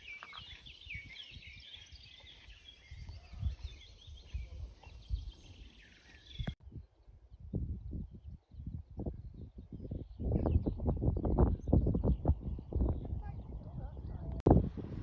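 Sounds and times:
small birds chirping: 0.0 - 14.4
wind rumbling on microphone: 0.0 - 15.0.

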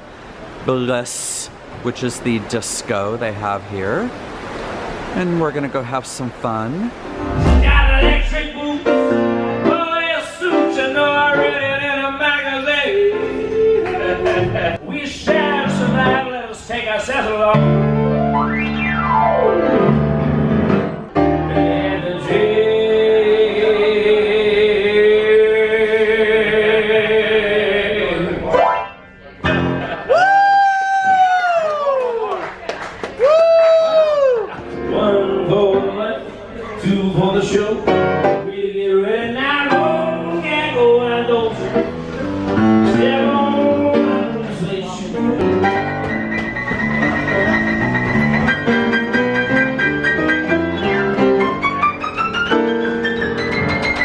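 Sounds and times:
grand piano playing: 7.0 - 11.7, 17.5 - 23.3, 28.5 - 30.0, 37.8 - 38.7, 39.6 - 54.0
man singing into a microphone: 7.7 - 16.4, 21.5 - 28.5, 34.9 - 41.9, 42.6 - 45.4.

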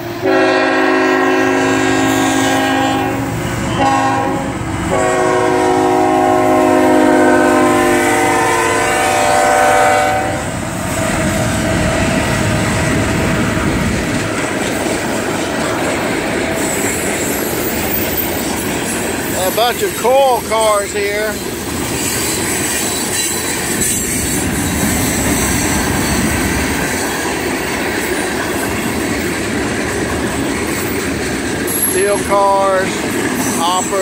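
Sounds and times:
train cars rolling on rails: 0.0 - 34.0
locomotive air horn blasts: 0.1 - 10.6.

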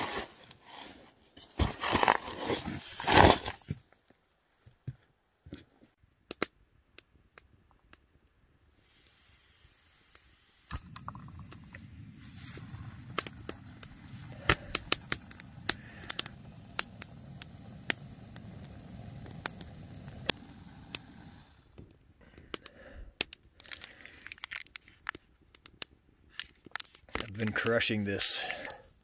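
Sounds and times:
paper packet crinkling: 23.6 - 25.3.

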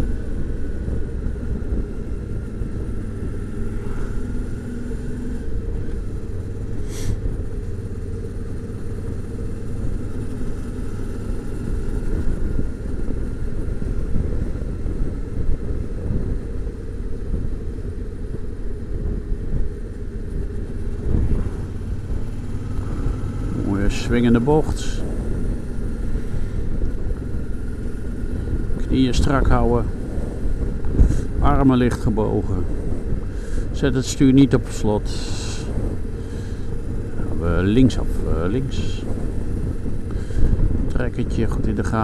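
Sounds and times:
motorcycle engine and road rumble: 0.0 - 42.0.

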